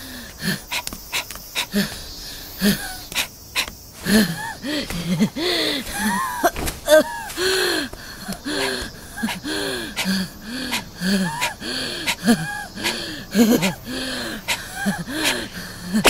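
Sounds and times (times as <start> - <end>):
cartoon character panting: 0.0 - 6.3, 7.3 - 16.0.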